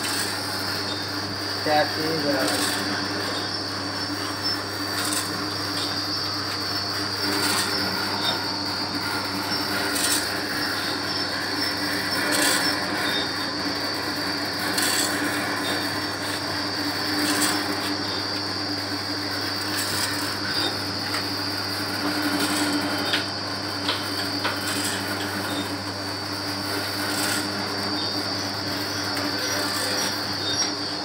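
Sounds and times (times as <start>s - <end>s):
packing machine humming: 0.0s - 31.0s.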